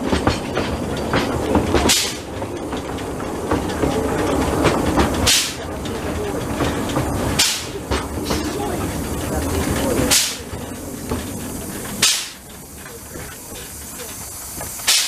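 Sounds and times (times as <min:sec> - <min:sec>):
train wheels rumbling on track: 0:00.0 - 0:15.0
sharp steam hissing swishes: 0:07.2 - 0:15.0.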